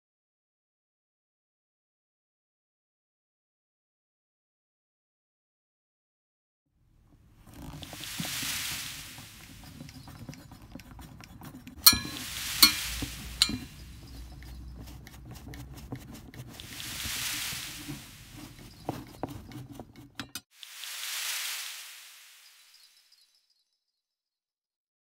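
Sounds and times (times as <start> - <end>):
hiss: 8.0 - 9.4, 12.0 - 13.6, 16.6 - 18.3, 20.6 - 23.1.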